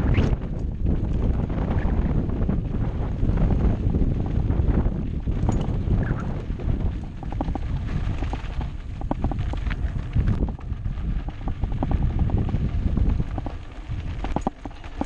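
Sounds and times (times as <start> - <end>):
wind rumbling on microphone: 0.0 - 15.0
bike frame rattling: 0.4 - 15.0.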